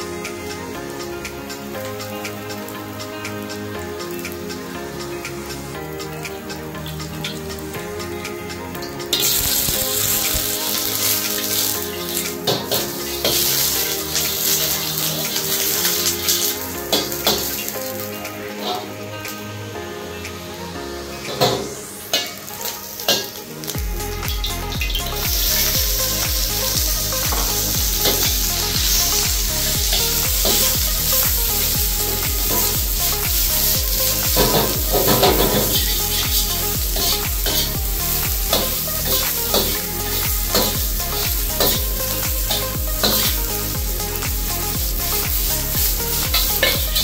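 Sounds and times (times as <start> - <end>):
meat sizzling in hot oil: 9.1 - 18.9, 21.4 - 47.0.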